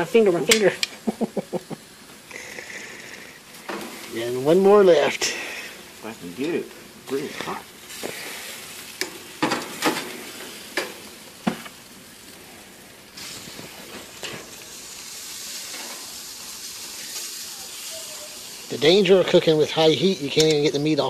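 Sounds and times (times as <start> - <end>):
grill sizzling hiss: 0.0 - 21.0
metal tongs clicking and scraping: 20.3 - 20.7.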